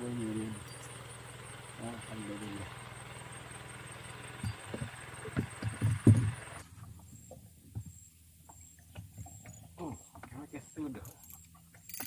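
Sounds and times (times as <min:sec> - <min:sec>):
low muffled thumps: 0:04.4 - 0:06.4.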